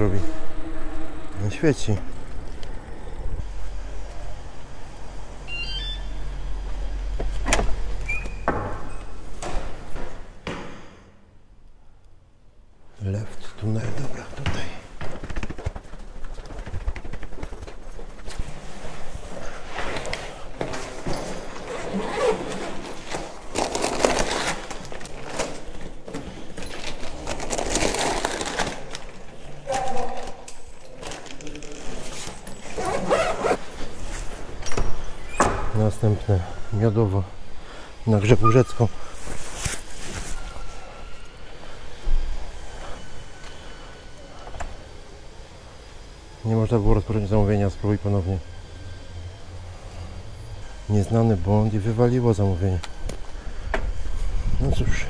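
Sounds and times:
electric bicycle rumble: 0.0 - 8.3, 41.3 - 54.7
wooden door opening and closing: 7.3 - 10.8
nylon fabric rustling: 21.4 - 25.7, 32.0 - 34.3
foil insulation crinkling: 22.1 - 25.8, 26.6 - 29.2.

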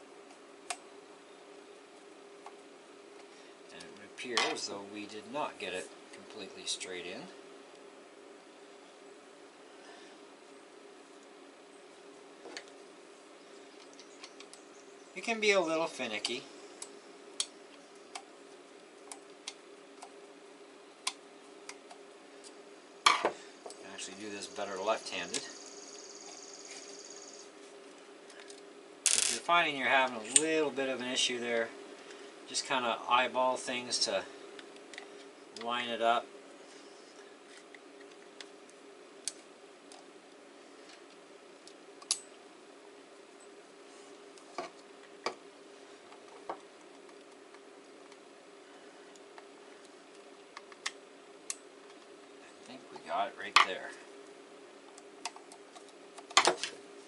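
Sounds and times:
faint hum: 0.0 - 57.0
air pistol parts clicking: 28.4 - 29.4.

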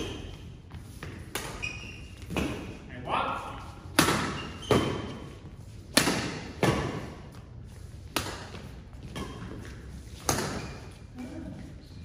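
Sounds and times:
badminton racket hitting shuttlecock: 3.8 - 5.3, 5.9 - 7.3, 8.0 - 11.0.

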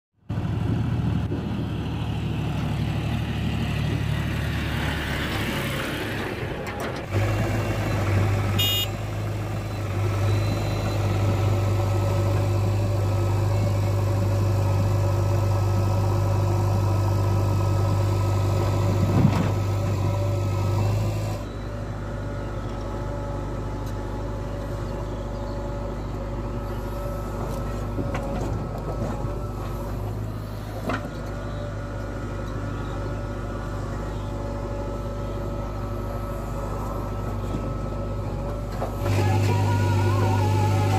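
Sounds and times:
diesel engines running: 0.2 - 40.9
backhoe digging soil: 4.8 - 21.7, 26.4 - 31.7, 35.2 - 40.9.

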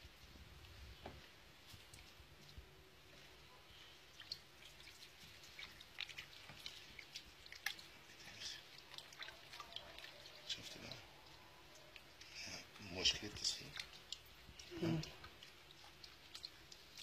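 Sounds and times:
wet clicks and squelches: 4.1 - 17.0.

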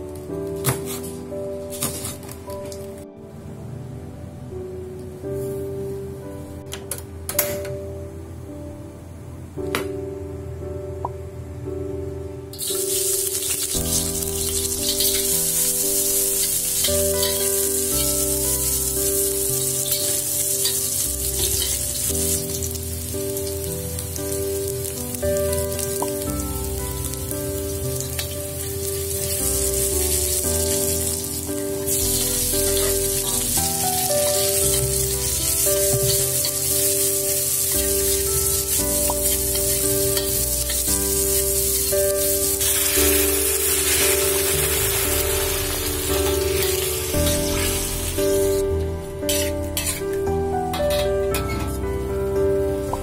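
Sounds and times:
background music: 0.0 - 53.0
food sizzling in hot oil: 12.6 - 48.7, 49.3 - 50.2.

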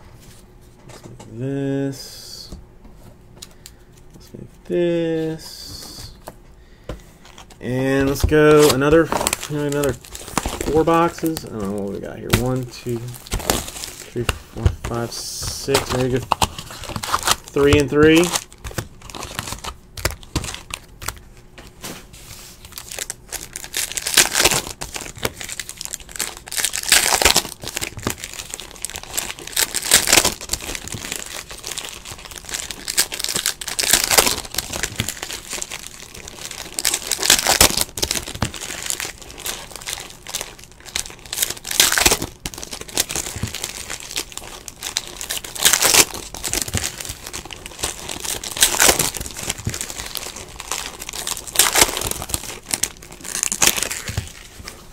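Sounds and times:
foil wrappers crinkling: 7.2 - 54.9
foil packs tearing: 7.3 - 14.3, 15.0 - 21.2, 22.6 - 54.6.

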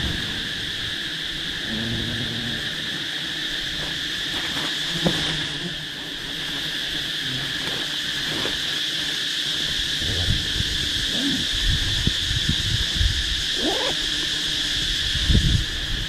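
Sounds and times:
insects chirring: 0.0 - 16.0
rising animal cry: 10.0 - 11.7, 13.5 - 14.0.

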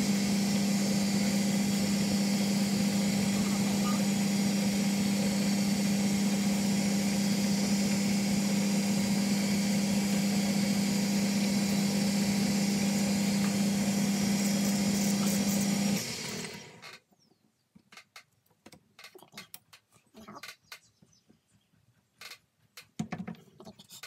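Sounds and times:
lathe cutting hiss: 0.0 - 16.8
lathe motor hum: 0.0 - 16.8.

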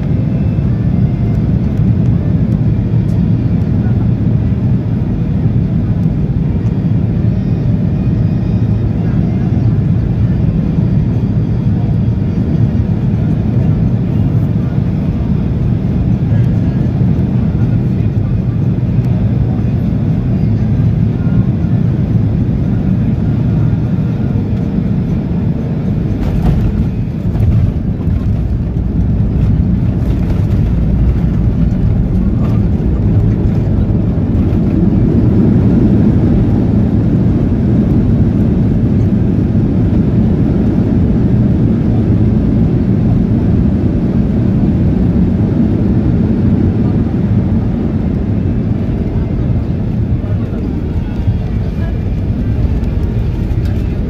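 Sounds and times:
airplane cabin rumble: 0.0 - 54.0.

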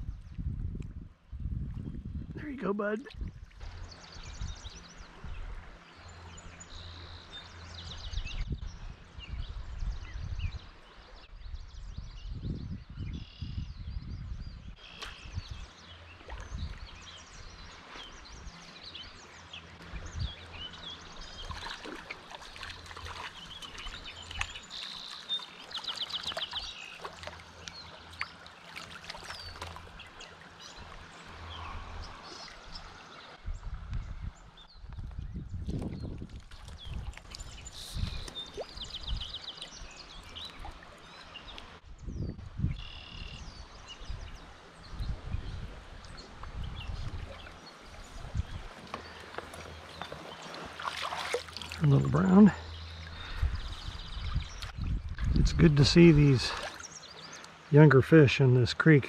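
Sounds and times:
low rumbling on microphone: 0.0 - 2.4, 11.3 - 15.7, 19.8 - 21.7, 30.7 - 50.5, 51.7 - 57.1
songbirds singing and chirping: 0.0 - 59.0
creek trickling: 2.4 - 9.2, 14.8 - 41.9, 42.8 - 59.0.

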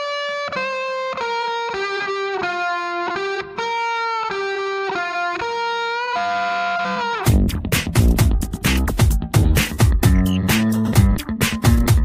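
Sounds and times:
instrumental melody of held notes: 8.2 - 12.0.

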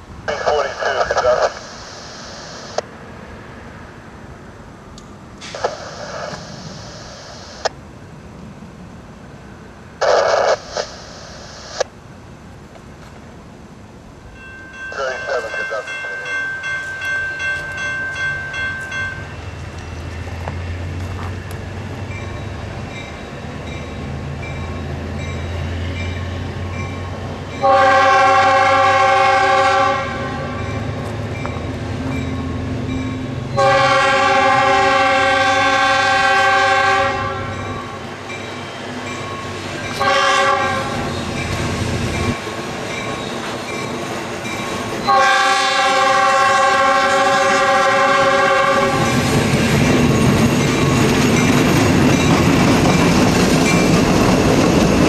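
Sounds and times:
train wheel noise: 10.0 - 55.0
locomotive air horn: 27.6 - 30.6, 33.6 - 37.6, 40.0 - 41.1, 45.1 - 49.2.

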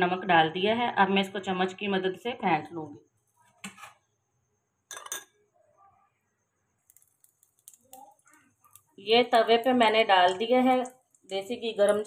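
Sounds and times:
spoon clinking on ceramic bowl: 4.9 - 5.4
egg frying crackle: 6.7 - 12.0.

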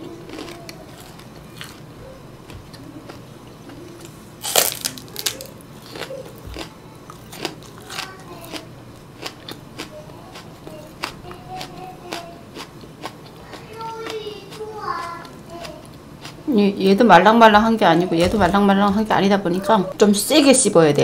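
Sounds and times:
chewing crunches: 0.0 - 16.5
crisp crunch of biting onion: 4.4 - 8.6.

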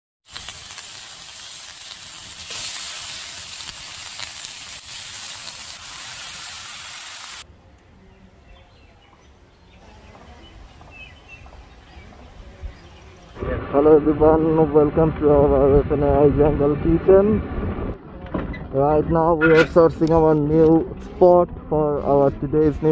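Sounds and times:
chicken frying in oil: 0.2 - 7.4.

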